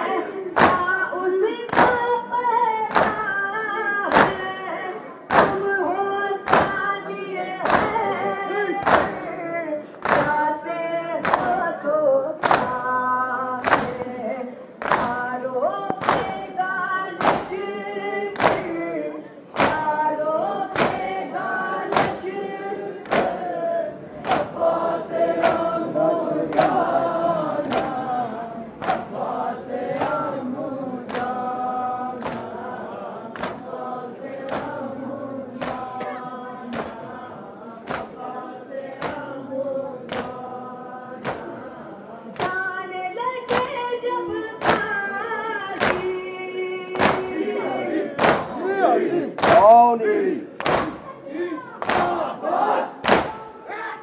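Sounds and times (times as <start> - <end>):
men chanting in unison: 16.2 - 42.4, 46.8 - 54.0
hands striking chests: 21.9 - 22.2, 46.9 - 47.4, 48.2 - 48.6, 49.4 - 49.8, 50.6 - 51.1.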